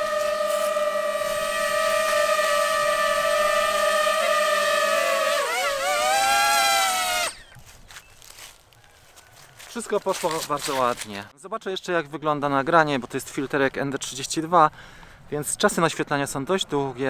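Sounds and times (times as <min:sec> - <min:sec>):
drone propellers whining: 0:00.0 - 0:07.6.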